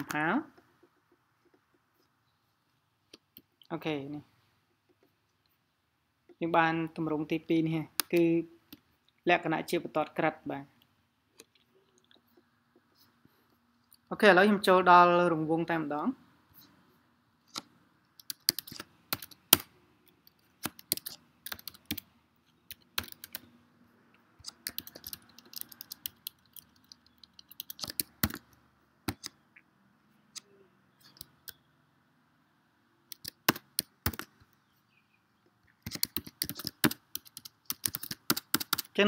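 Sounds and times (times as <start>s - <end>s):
computer keyboard typing: 17.5s - 22.1s, 22.7s - 23.5s, 24.4s - 29.4s, 31.0s - 31.6s, 33.1s - 34.4s, 35.8s - 39.0s.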